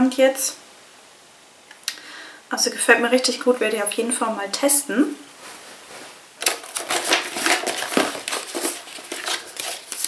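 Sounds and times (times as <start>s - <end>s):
paper rustling and crinkling: 5.4s - 10.0s.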